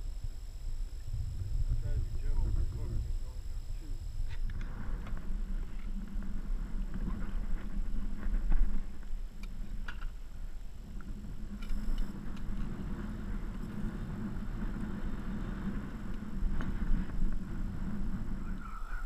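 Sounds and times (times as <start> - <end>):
boat motor humming: 0.0 - 5.0.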